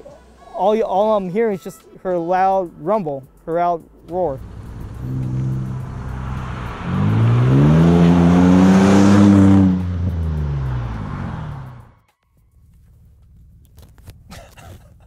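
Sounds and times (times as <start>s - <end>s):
car engine accelerating past: 4.4s - 12.0s.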